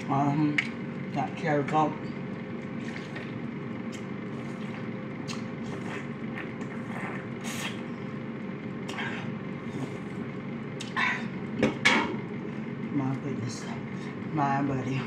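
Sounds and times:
low room hum: 0.0 - 15.0
soft swallowing: 2.7 - 7.9.

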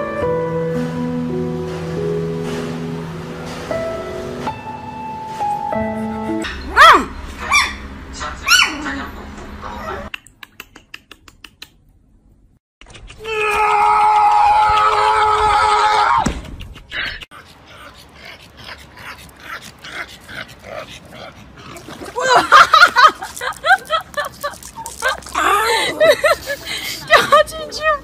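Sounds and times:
small dog yelping: 6.5 - 7.8, 8.4 - 8.8.

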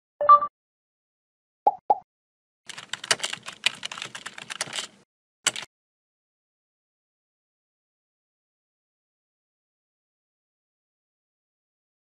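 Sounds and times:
keyboard key clicks: 2.7 - 5.7.

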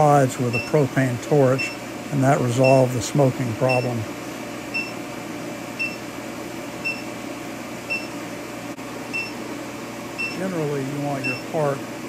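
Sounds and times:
induction heater hissing: 0.0 - 12.0
short high beeps: 5.8 - 6.0.

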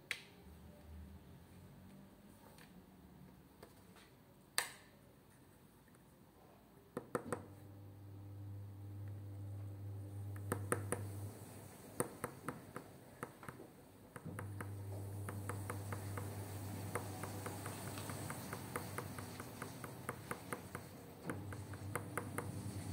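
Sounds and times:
low steady hum: 7.4 - 13.2, 14.1 - 22.9.

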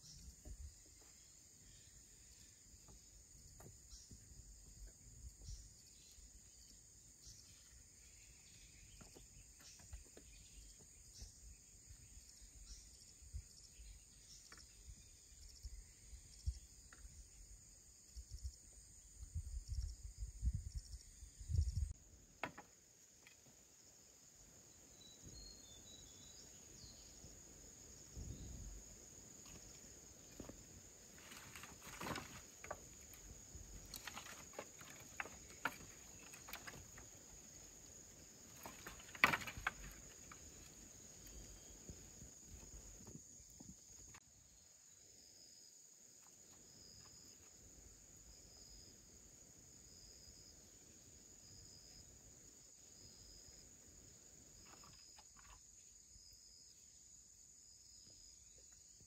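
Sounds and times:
high-pitched insect chorus: 0.0 - 59.0.

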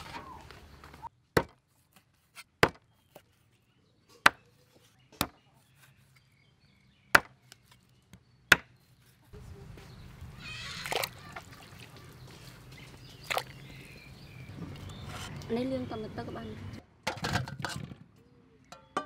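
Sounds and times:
cleaver chopping on wooden board: 1.4 - 1.6, 2.6 - 3.2, 5.2 - 5.5, 7.1 - 7.4, 8.5 - 8.7.

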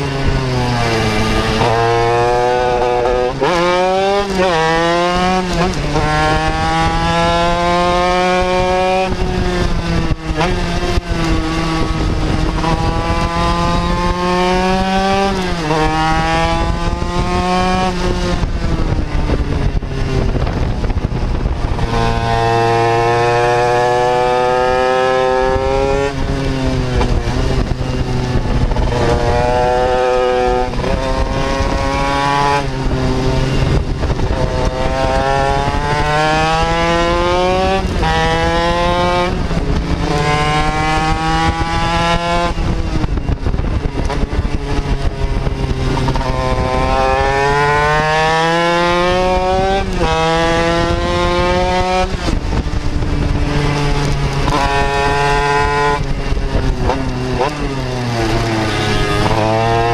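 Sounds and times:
racing motorcycle engine revving: 0.0 - 59.9.

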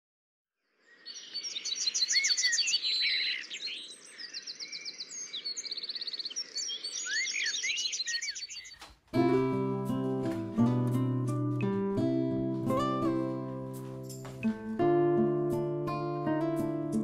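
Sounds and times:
songbirds chirping and singing: 0.9 - 8.9.

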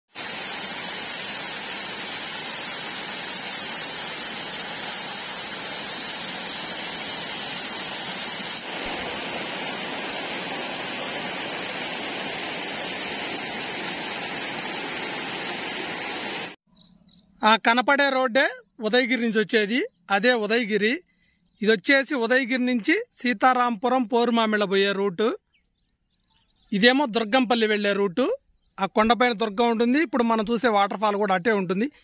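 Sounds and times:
waterfall rushing over boulders: 0.1 - 16.6.

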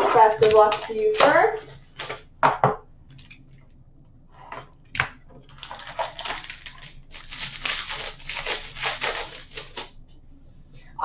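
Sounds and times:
plastic and foil wrapping crinkling: 0.0 - 2.4, 5.1 - 10.0.

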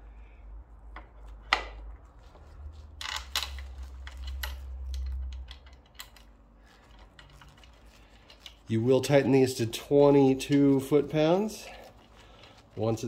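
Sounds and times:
low rumble of handling: 0.0 - 13.0.

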